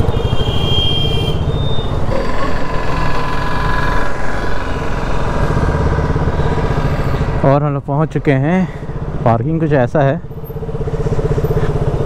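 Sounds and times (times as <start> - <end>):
road and wind rumble: 0.0 - 12.0
high electronic beep: 0.8 - 2.1
motorcycle engine running: 1.4 - 12.0.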